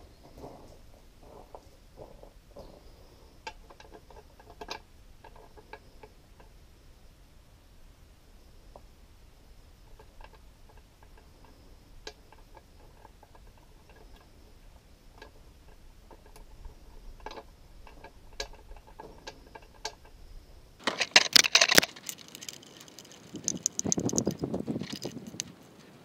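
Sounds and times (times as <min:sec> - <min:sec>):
hands working metal parts: 0:09.8 - 0:25.6
ratchet wrench clicking: 0:21.0 - 0:25.5.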